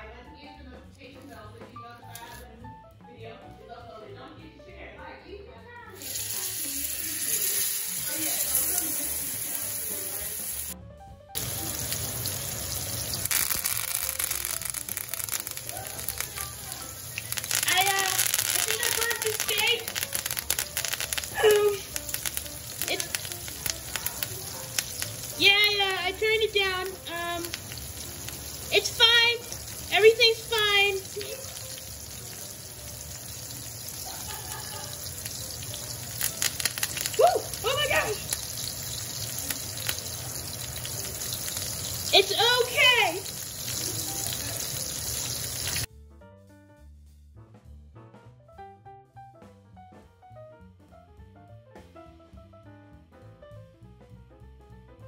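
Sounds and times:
background music: 0.0s - 55.0s
steak sizzling in hot oil: 6.0s - 10.8s, 11.4s - 45.9s
oil spattering crackles: 11.4s - 45.9s.

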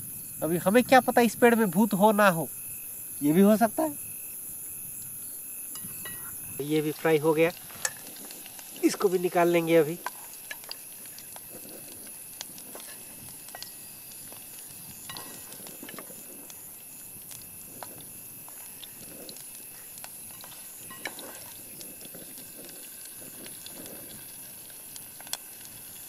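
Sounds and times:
hot oil sizzling: 0.0s - 26.0s
small crackles and pops: 0.0s - 26.0s.

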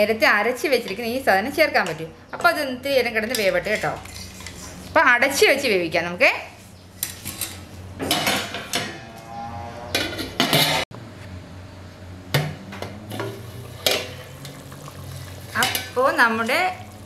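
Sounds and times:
metal lid and ladle clattering: 7.0s - 9.1s, 9.9s - 10.8s, 13.1s - 16.6s.

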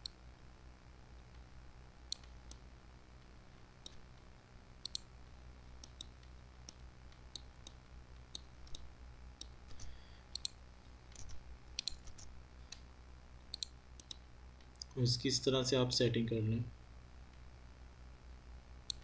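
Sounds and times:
low steady hum: 0.0s - 19.0s
computer mouse clicking: 2.1s - 2.6s, 3.8s - 4.0s, 4.8s - 5.1s, 5.8s - 12.9s, 13.5s - 14.2s.

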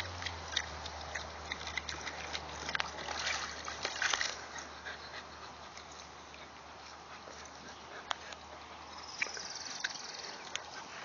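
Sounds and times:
dogs splashing in water: 0.0s - 8.5s.

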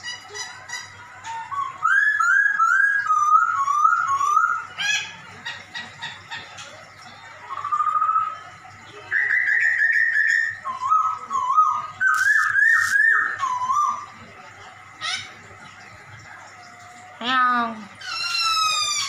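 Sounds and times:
bird singing slurred whistles: 1.3s - 4.8s, 7.5s - 8.4s, 9.1s - 14.2s.

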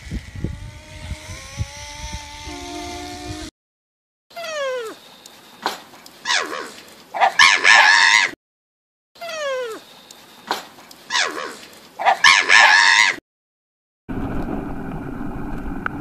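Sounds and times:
harsh squeal: 0.0s - 3.5s.

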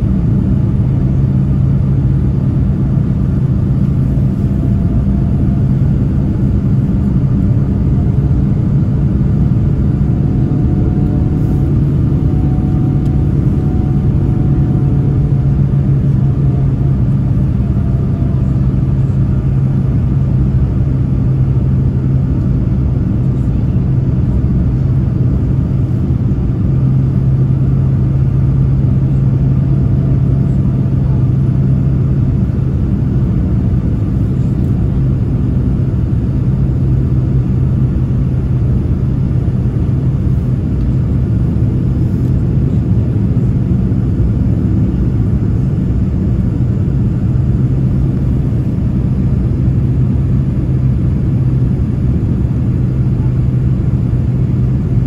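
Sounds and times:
jet engines rumbling in cabin: 0.0s - 55.0s.

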